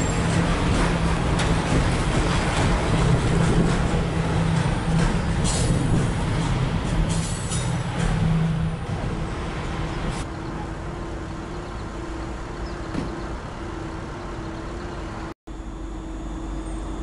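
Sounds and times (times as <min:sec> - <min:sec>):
light-rail train humming: 0:00.0 - 0:17.0
train rumbling over steel bridge: 0:00.0 - 0:17.0.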